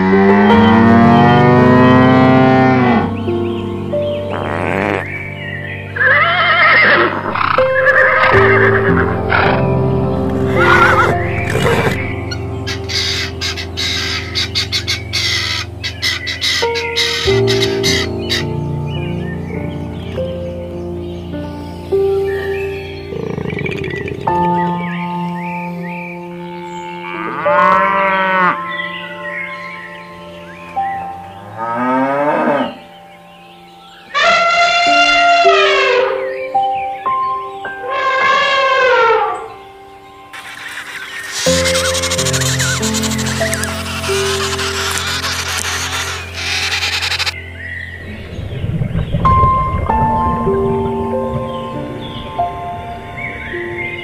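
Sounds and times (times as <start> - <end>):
background music with held notes: 0.0 - 54.0
bird wavering calls: 3.4 - 9.7, 10.4 - 18.6, 39.2 - 48.0
cow mooing: 27.0 - 28.6, 31.5 - 32.8.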